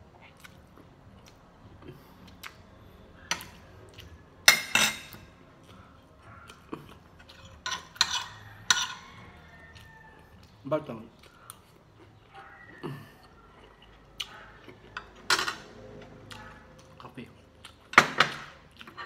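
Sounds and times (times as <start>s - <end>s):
metal spoon clinking on plate: 4.5s - 5.2s.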